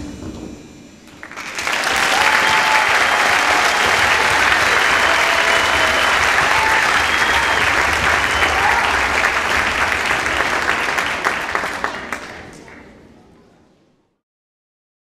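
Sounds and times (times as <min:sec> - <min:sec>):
audience applause: 0:01.1 - 0:13.1.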